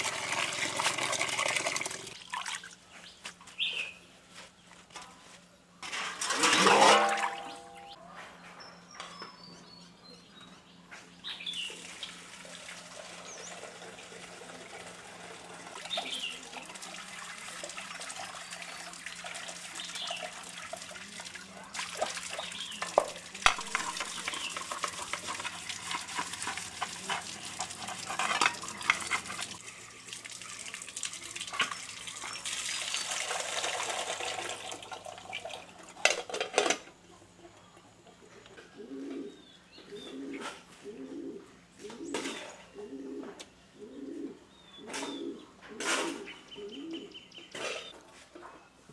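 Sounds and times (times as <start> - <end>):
water splashing and trickling: 0.0 - 2.9, 6.2 - 8.0, 11.7 - 36.1.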